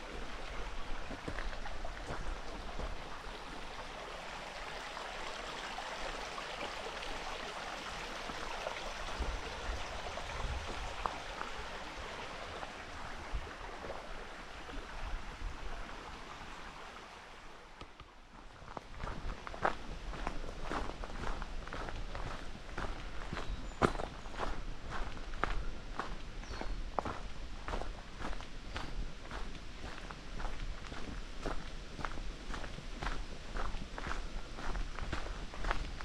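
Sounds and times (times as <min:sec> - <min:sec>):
running water rushing: 0:00.0 - 0:18.6.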